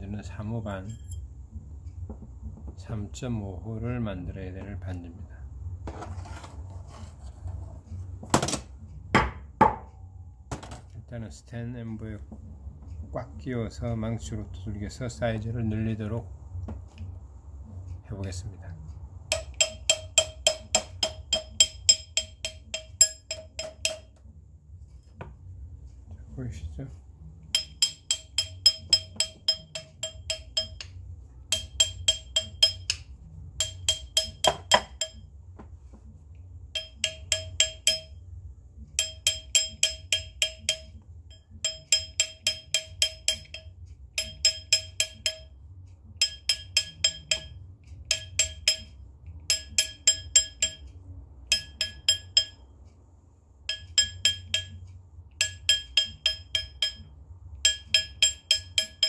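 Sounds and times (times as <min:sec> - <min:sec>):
hammer tapping metal ring: 0:19.2 - 0:24.3, 0:27.5 - 0:35.4, 0:36.7 - 0:38.2, 0:38.9 - 0:52.7, 0:53.6 - 0:59.0
metallic ping: 0:19.3 - 0:24.2, 0:27.5 - 0:35.3, 0:36.7 - 0:38.2, 0:39.0 - 0:45.6, 0:46.2 - 0:52.7, 0:53.7 - 0:59.0.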